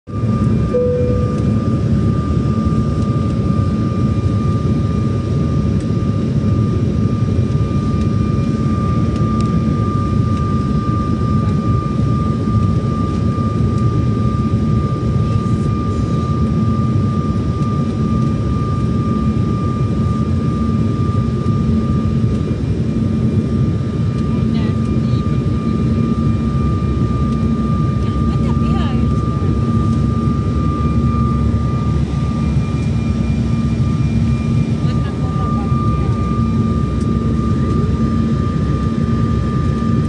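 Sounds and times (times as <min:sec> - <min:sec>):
airliner cabin engine rumble: 0:00.1 - 0:40.0
thin steady whine: 0:00.2 - 0:04.2.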